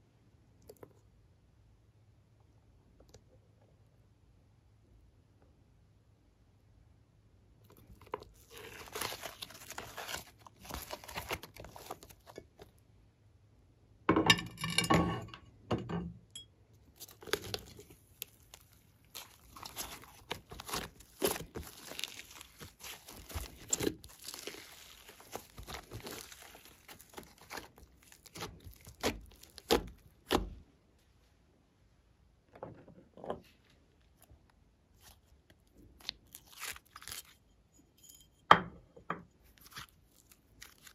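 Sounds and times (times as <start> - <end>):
clay crinkling and crackling: 7.6 - 12.8, 16.7 - 31.4, 32.4 - 38.3, 39.1 - 40.9
slime squishing: 7.7 - 12.7, 16.8 - 30.6, 34.9 - 37.4, 39.4 - 40.9.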